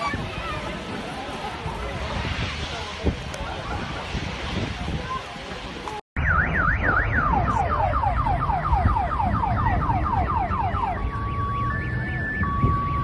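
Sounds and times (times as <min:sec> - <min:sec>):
car alarm: 0:06.2 - 0:13.0.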